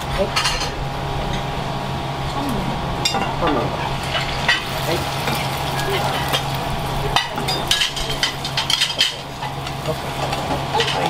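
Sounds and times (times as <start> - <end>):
steady low hum: 0.0 - 11.0
food sizzling in a frying pan: 4.0 - 11.0
metal utensils clinking on pans: 4.2 - 11.0.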